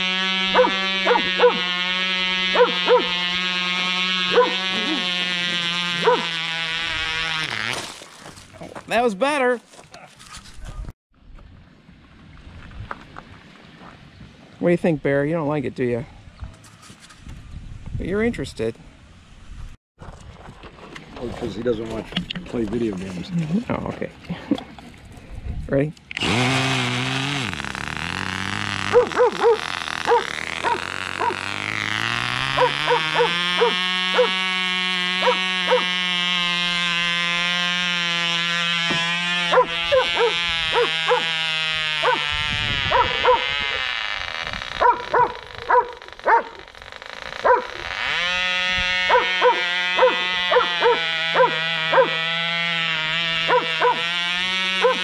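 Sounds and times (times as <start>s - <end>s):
model engine running high pitched: 0.0s - 7.4s, 26.2s - 44.5s, 47.4s - 55.0s
dog barking: 0.6s - 1.6s, 2.6s - 3.1s, 4.3s - 4.6s, 6.0s - 6.2s, 28.9s - 31.4s, 32.6s - 34.3s, 39.5s - 41.2s, 42.0s - 42.2s, 42.9s - 43.4s, 44.8s - 46.6s, 47.4s - 47.7s, 49.1s - 52.2s, 53.5s - 54.0s.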